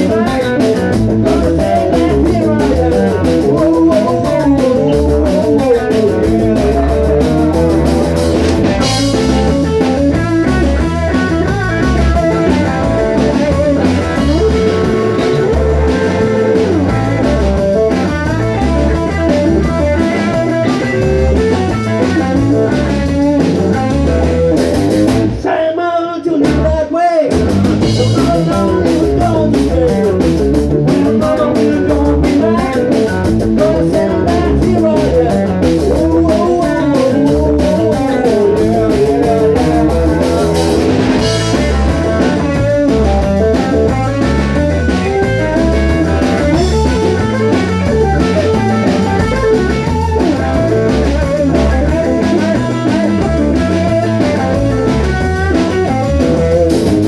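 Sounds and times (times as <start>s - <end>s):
electric guitar bending notes: 0.0s - 25.4s, 27.3s - 57.0s
bass guitar: 0.0s - 57.0s
drum kit: 0.0s - 57.0s.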